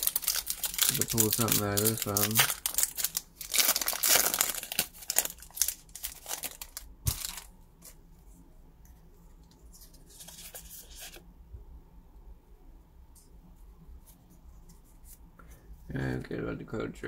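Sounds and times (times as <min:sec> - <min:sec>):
foil wrapper tearing and crinkling: 0:00.0 - 0:07.5.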